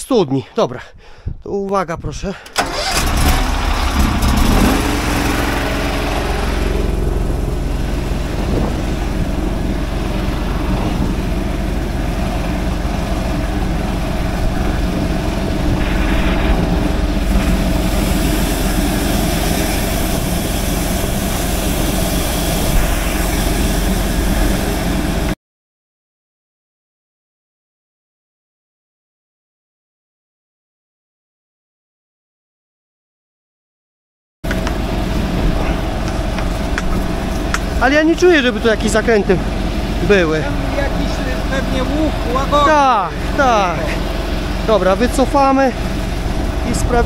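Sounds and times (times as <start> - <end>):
sewer jetter engine running: 2.4 - 25.4, 34.4 - 47.0.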